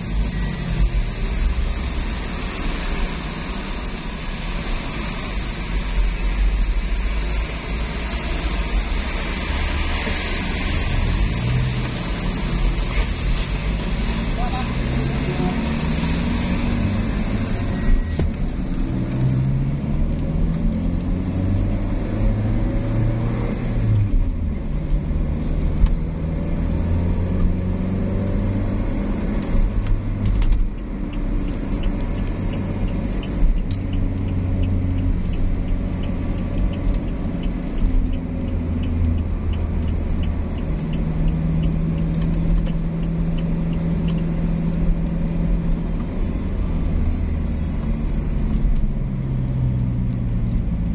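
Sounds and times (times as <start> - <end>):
car engine and tyre noise: 0.0 - 50.9
faint regular ticking: 30.6 - 45.2.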